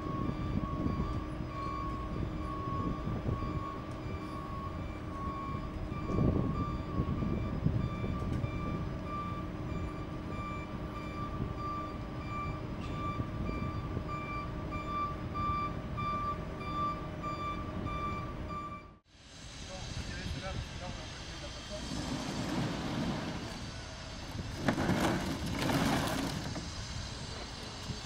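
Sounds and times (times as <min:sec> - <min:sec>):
electronic warning beeps: 0:00.0 - 0:19.0
tram rumbling on track: 0:00.0 - 0:28.0.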